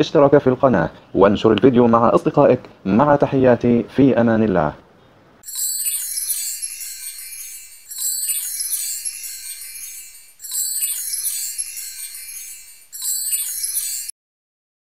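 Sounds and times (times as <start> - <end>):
sparkly high-pitched chime: 5.4 - 14.2.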